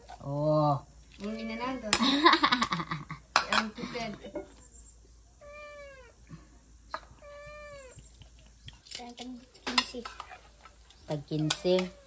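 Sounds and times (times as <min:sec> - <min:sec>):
cat meowing: 0:01.2 - 0:01.9, 0:05.4 - 0:06.2, 0:07.2 - 0:08.1.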